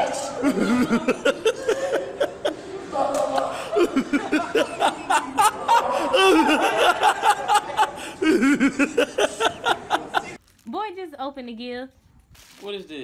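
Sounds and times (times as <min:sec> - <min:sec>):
people laughing hard: 0:00.2 - 0:10.4.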